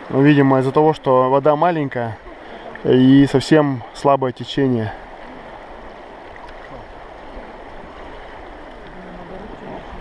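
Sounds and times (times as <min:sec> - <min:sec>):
river water rushing over stones: 0:00.0 - 0:10.0.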